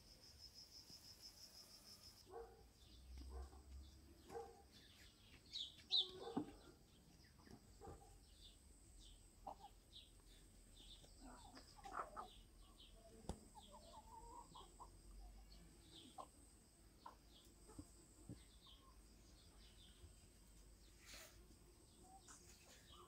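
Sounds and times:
bird chirps: 4.2 - 7.6
hens clucking: 9.4 - 9.9, 10.9 - 12.5, 13.5 - 15.3.

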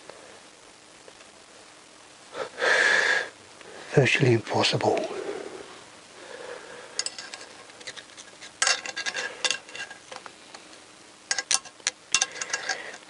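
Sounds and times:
metal tool clicks and scrapes: 7.0 - 10.2, 11.3 - 13.0.

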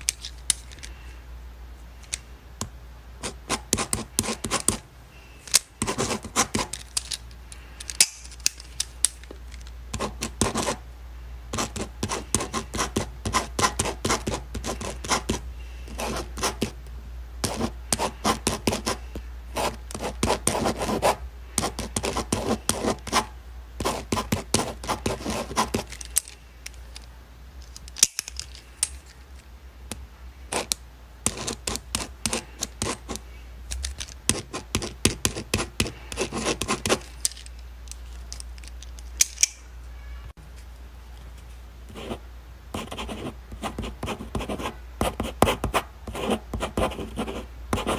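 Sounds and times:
pen scratching on paper: 3.2 - 4.8, 5.8 - 6.7, 10.0 - 10.8, 11.5 - 16.8, 17.4 - 25.9, 31.3 - 33.2, 34.3 - 37.0, 41.9 - 42.2, 42.8 - 47.9.

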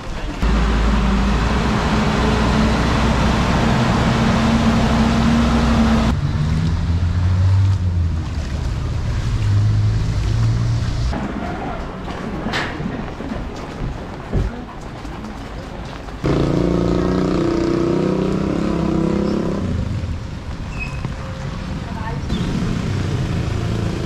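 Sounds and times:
engine humming: 0.0 - 12.0
rain falling: 0.0 - 22.2.

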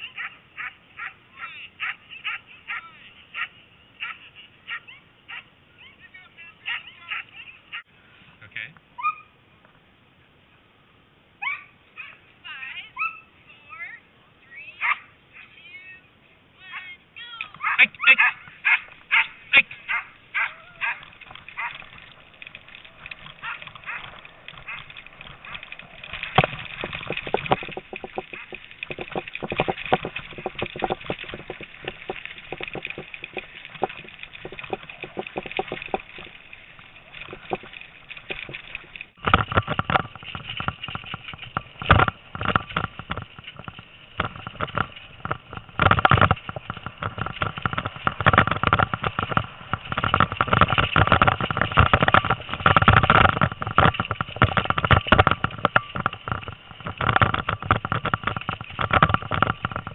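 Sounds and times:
bicycle rattling over dirt trail: 0.0 - 7.9, 16.7 - 59.9.

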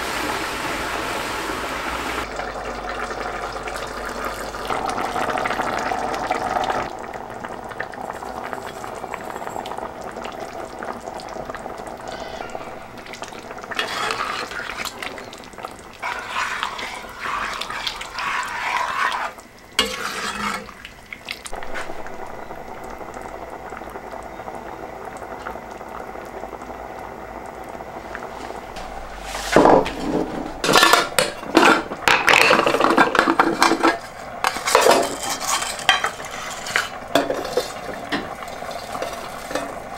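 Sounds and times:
sauce simmering: 0.2 - 39.9
spoon scraping pot: 13.7 - 15.4, 16.0 - 20.8, 33.7 - 37.8.

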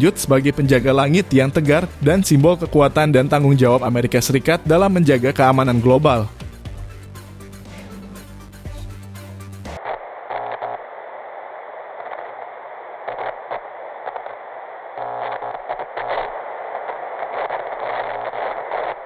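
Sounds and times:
tv static hiss and crackles: 9.7 - 19.0.

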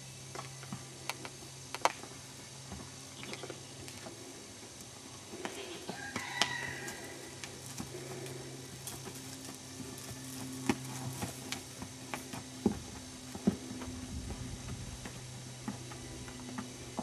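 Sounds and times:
low hum: 0.0 - 17.0
horse footfalls on dirt: 0.3 - 4.2, 5.3 - 17.0.

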